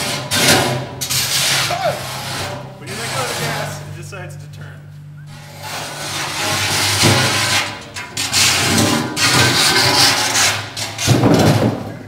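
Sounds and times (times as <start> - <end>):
robot grinding and scraping concrete: 0.2 - 3.8, 5.3 - 11.1.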